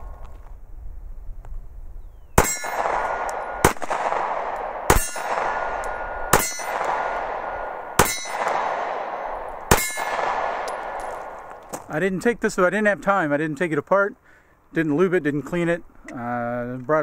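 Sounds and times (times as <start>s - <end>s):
pistol shots with ringing tail: 2.4s - 11.9s.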